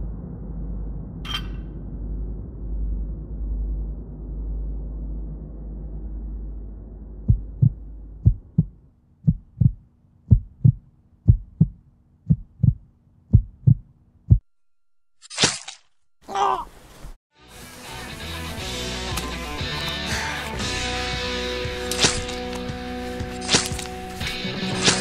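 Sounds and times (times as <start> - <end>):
heartbeat double thump: 7.2 - 14.5.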